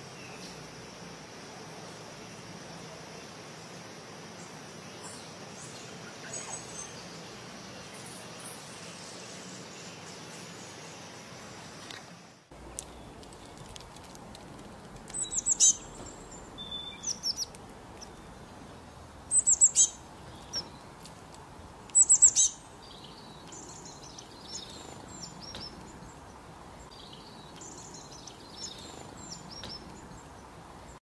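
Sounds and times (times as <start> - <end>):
songbirds calling: 0.0 - 31.0
high bird twittering: 15.1 - 18.4, 19.3 - 20.8, 21.9 - 26.0.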